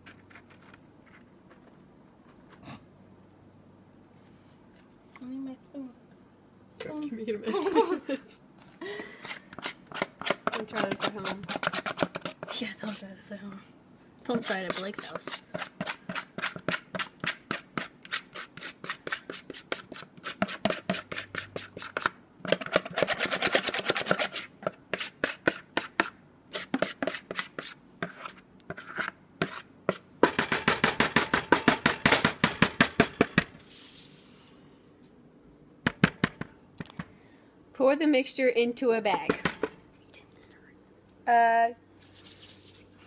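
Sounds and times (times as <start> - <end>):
spoon scraping a mixing bowl: 9.3 - 13.0, 14.3 - 30.0.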